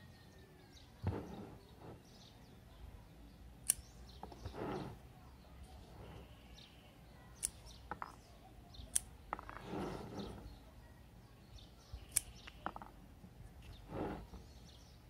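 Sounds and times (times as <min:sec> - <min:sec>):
small scissors snipping: 0:03.6 - 0:03.9, 0:07.4 - 0:07.8, 0:12.1 - 0:12.6.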